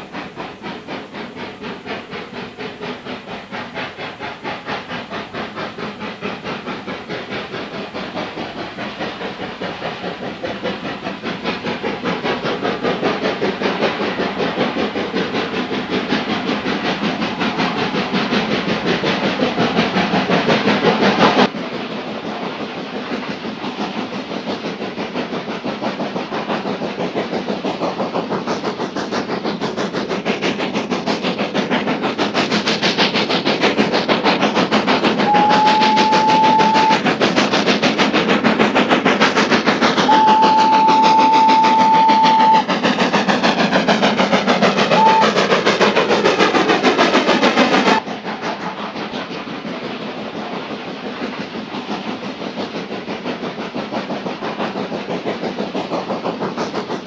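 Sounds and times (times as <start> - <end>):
steam locomotive exhaust chuffing: 0.0 - 57.0
steam whistle: 35.2 - 37.0, 40.0 - 42.7, 44.9 - 45.5.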